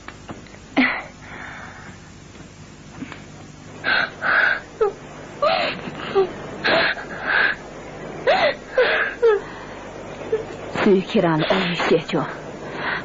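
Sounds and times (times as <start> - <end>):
person sobbing: 3.9 - 7.6, 8.2 - 9.5.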